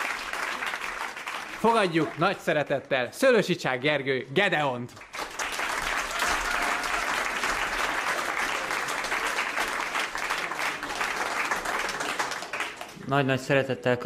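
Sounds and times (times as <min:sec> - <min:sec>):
audience applauding: 0:00.0 - 0:02.7, 0:04.9 - 0:13.2.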